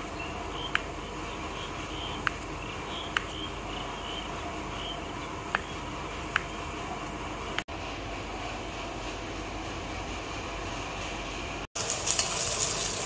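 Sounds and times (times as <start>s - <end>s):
knife tapping cutting board: 3.1s - 3.4s.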